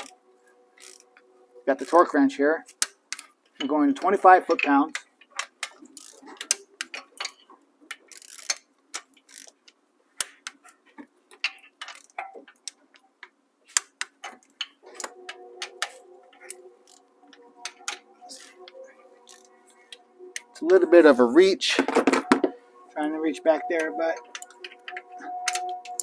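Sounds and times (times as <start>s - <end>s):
background music: 0.0s - 2.8s, 14.7s - 26.0s
torque wrench ratcheting clicks: 4.9s - 6.6s, 8.1s - 8.6s, 9.3s - 9.6s.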